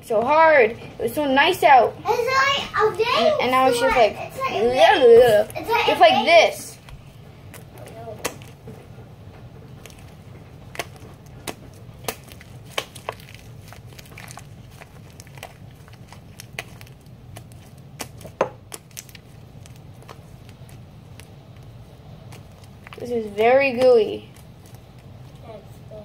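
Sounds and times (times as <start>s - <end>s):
slime popping and crackling: 6.9s - 25.5s.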